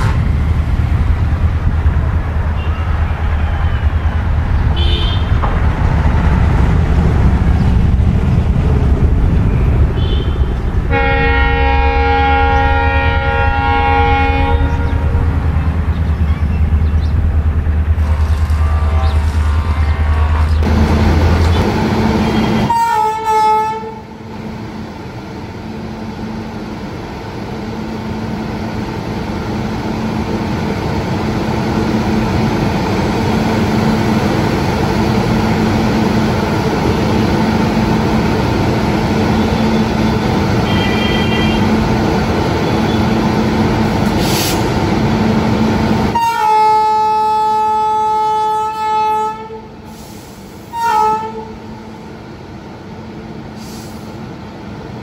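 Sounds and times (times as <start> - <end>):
locomotive running noise: 0.0 - 55.0
locomotive horn blast: 4.7 - 5.4, 9.9 - 15.5, 18.0 - 24.1, 39.4 - 41.9, 46.1 - 49.7, 50.6 - 51.7.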